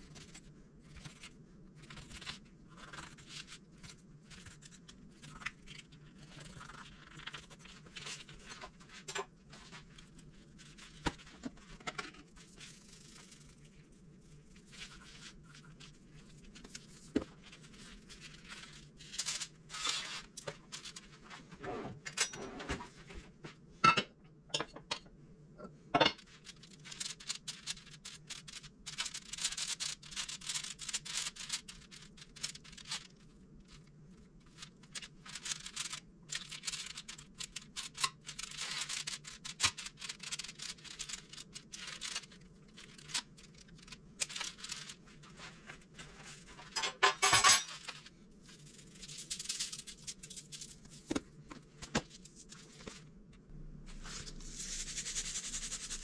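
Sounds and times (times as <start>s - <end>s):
foil crinkling and scraping: 0.0s - 21.4s, 26.2s - 46.8s, 47.4s - 53.1s
seasoning shaken over fish: 54.4s - 56.0s.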